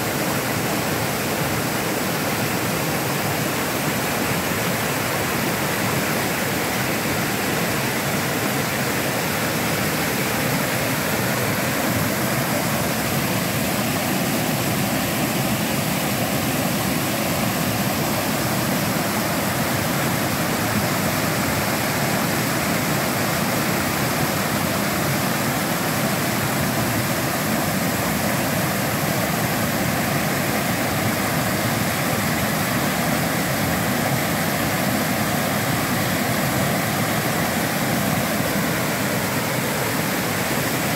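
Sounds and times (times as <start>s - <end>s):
waterfall over rocks: 0.0s - 40.9s.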